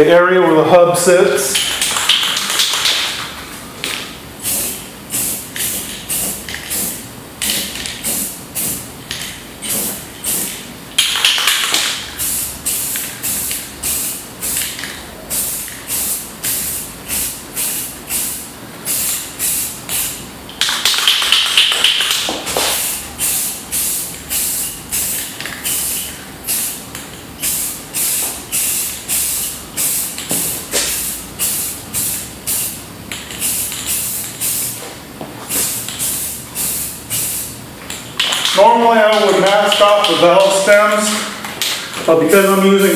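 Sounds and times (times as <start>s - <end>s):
aerosol spray can spraying: 4.4s - 8.9s, 9.6s - 26.8s, 27.4s - 34.8s, 35.5s - 37.5s.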